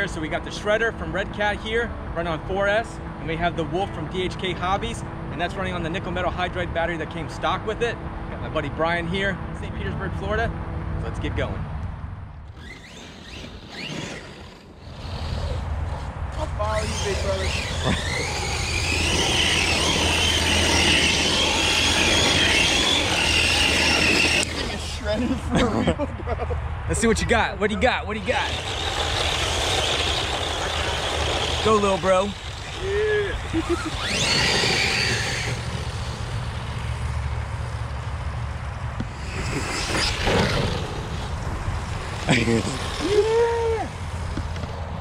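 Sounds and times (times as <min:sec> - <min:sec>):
electric toy car motors whining: 0:12.5 - 0:25.2, 0:28.1 - 0:44.8
tyres tearing through dry leaves: 0:28.2 - 0:36.8.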